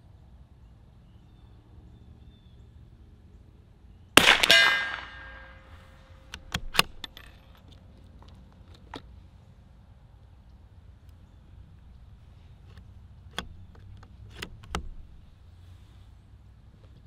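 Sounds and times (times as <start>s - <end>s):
rifle shot: 4.2s - 5.9s
rifle bolt clicks: 6.3s - 7.4s.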